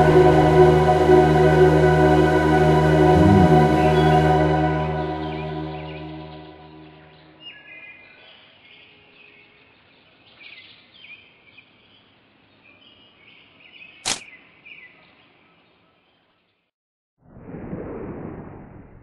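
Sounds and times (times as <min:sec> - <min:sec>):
sustained music: 0:00.0 - 0:07.2
gun handling click: 0:14.1 - 0:14.3.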